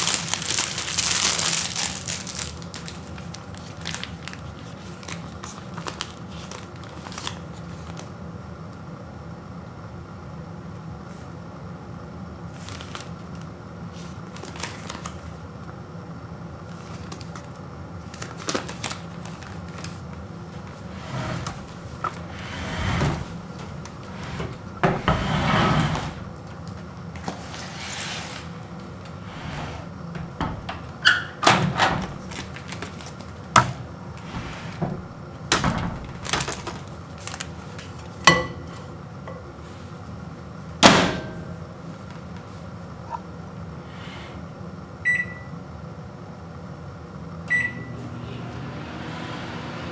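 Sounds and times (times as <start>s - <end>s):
paper bag crinkling: 0.0s - 8.1s, 12.5s - 13.4s, 14.0s - 15.3s, 16.7s - 21.0s, 32.2s - 33.6s, 35.5s - 38.2s.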